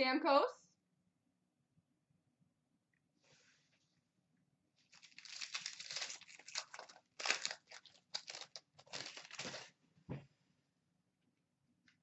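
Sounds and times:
foil wrapper crinkling and tearing: 4.9 - 9.8.

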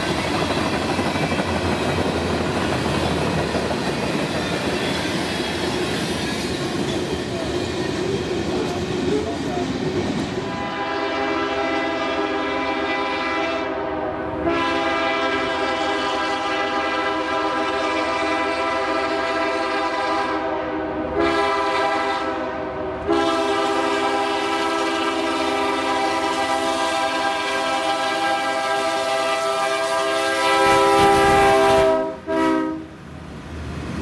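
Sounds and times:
train air horn chord: 10.4 - 32.9.

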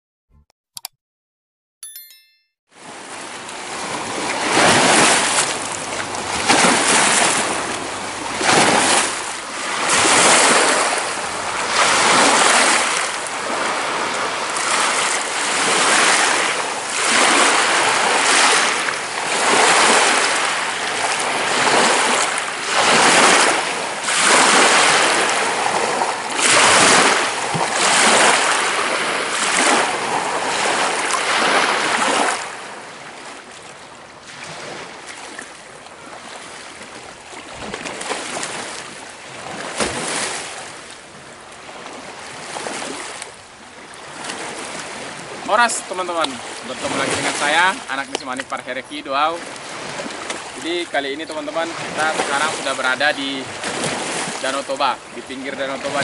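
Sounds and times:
lake waves washing in: 2.8 - 56.0.

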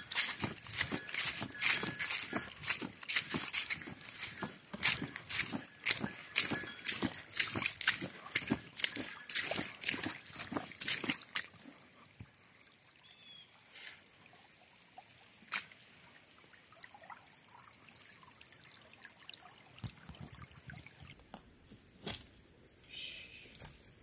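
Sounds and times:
dry leaves crackling: 0.0 - 11.4
water trickling: 0.0 - 21.2.

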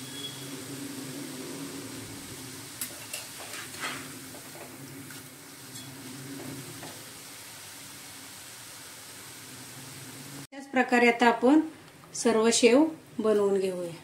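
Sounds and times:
frying in hot oil sizzling: 0.0 - 11.6
metal spatula scraping pan: 2.8 - 7.0.

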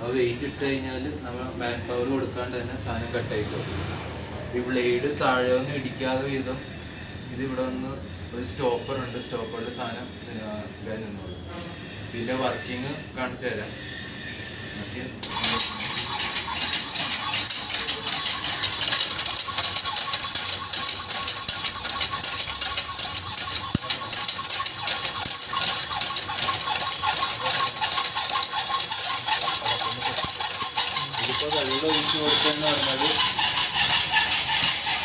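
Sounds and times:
power hacksaw rasping rattle: 15.2 - 35.0.

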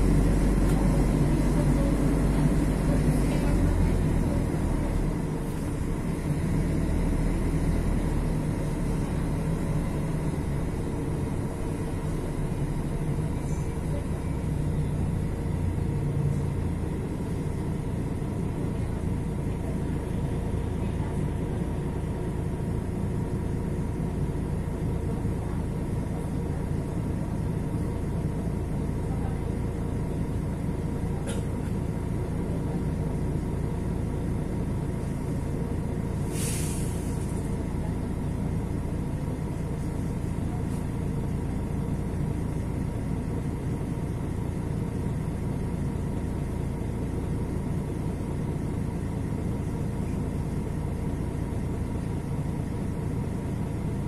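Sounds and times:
bus diesel engine idling: 0.0 - 54.0
compressed air hiss: 36.2 - 37.4.

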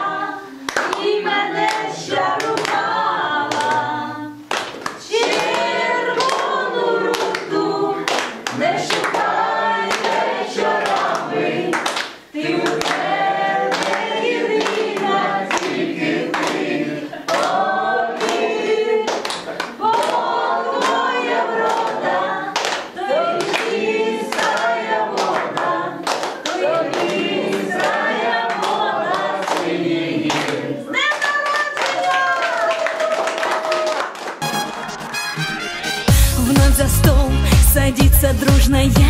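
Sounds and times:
folk trio singing: 0.0 - 31.0
guests clapping along: 0.0 - 36.2.

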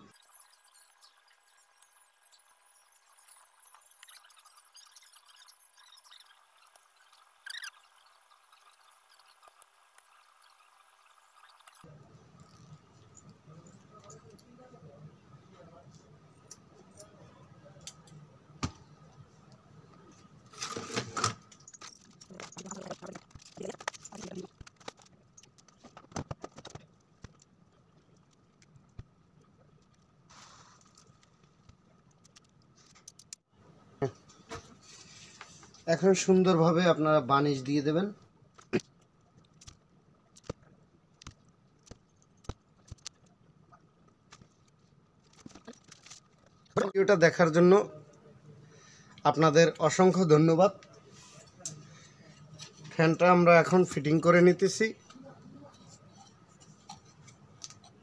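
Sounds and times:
small clicks and snips: 30.8 - 33.4.

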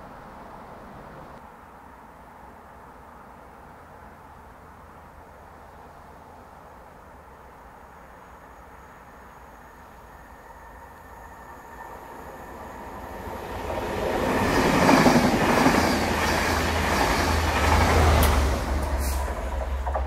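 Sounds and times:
train wheels rumbling and clattering: 12.9 - 20.0.

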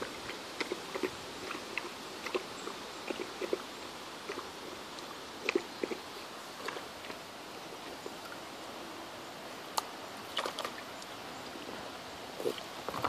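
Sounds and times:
puppy lapping water: 0.0 - 8.4, 10.3 - 10.9.

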